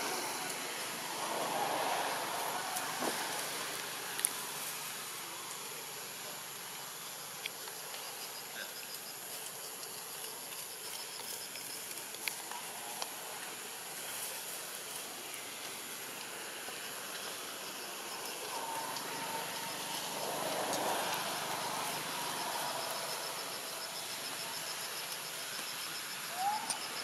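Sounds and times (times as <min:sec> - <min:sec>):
insects droning: 0:00.0 - 0:27.0
outdoor ambience hiss: 0:00.0 - 0:27.0.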